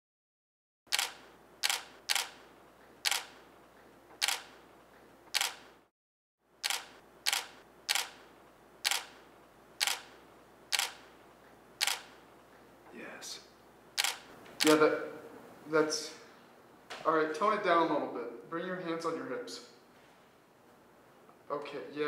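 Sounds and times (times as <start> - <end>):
camera shutter clicks: 0.9 - 2.4, 3.0 - 3.4, 4.2 - 4.6, 5.4 - 5.8, 6.6 - 8.2, 8.8 - 9.2, 9.8 - 11.0, 11.8 - 12.2, 14.0 - 14.8.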